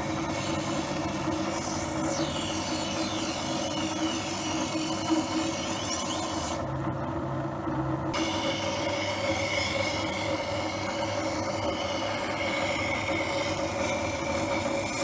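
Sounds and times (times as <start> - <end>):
knife grinding on wheel: 0.0 - 15.0
sharpening machine motor hum: 0.0 - 15.0.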